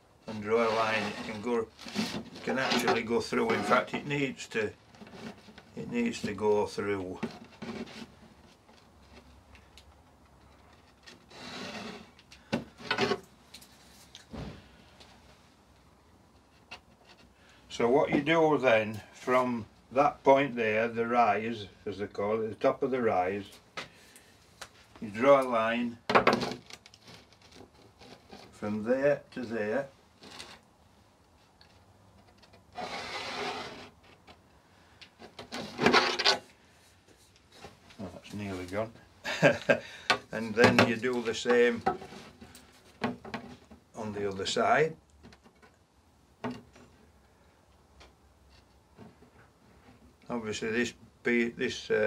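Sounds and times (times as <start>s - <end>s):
marker scratching along steel edge: 32.8s - 33.9s.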